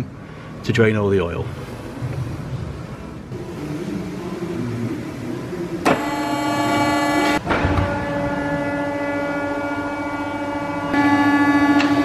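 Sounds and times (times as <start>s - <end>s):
vehicle lift motor whining: 3.2s - 12.0s.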